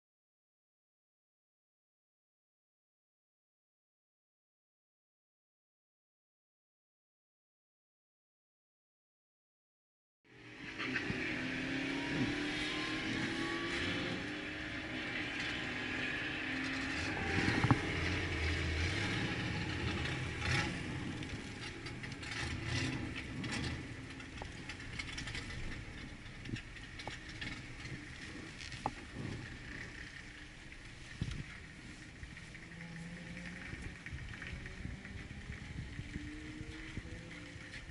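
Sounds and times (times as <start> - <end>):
car engine from inside cabin: 10.6 - 37.9.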